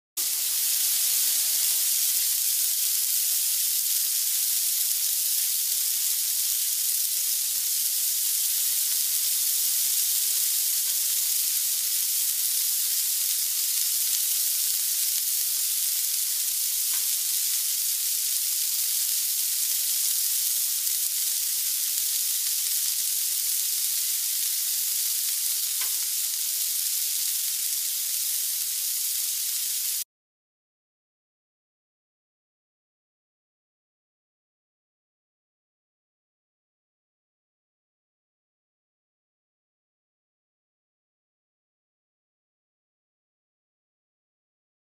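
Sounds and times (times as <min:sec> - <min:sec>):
leaves sizzling in a hot pan: 0:00.2 - 0:30.1.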